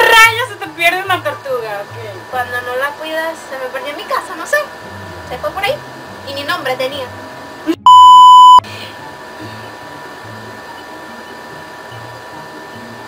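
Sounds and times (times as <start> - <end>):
high test-tone beep: 7.8 - 8.6.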